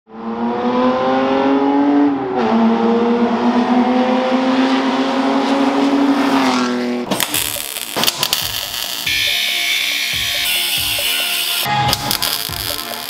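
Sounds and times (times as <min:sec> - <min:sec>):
engine accelerating hard: 0:00.1 - 0:07.1.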